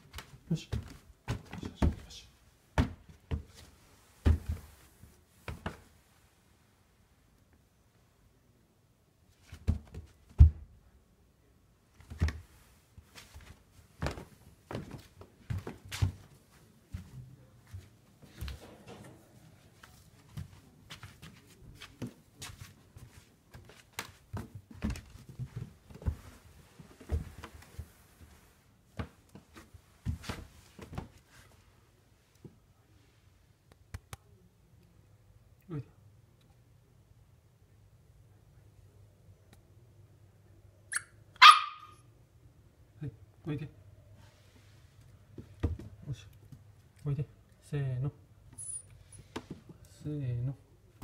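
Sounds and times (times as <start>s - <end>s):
soft thumps on wooden floor: 4.2s - 4.8s.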